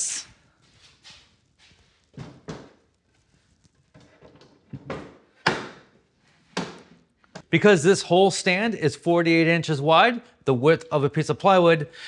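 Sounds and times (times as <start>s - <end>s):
wood panels knocking and scraping: 2.1s - 2.9s, 3.9s - 7.0s.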